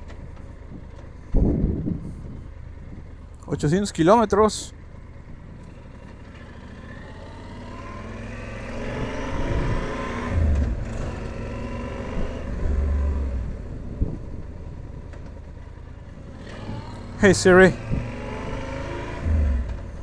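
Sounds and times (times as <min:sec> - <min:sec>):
wind rumbling on microphone: 0:00.0 - 0:03.3, 0:08.8 - 0:11.2, 0:11.9 - 0:15.2
motorcycle and road noise: 0:00.0 - 0:20.0.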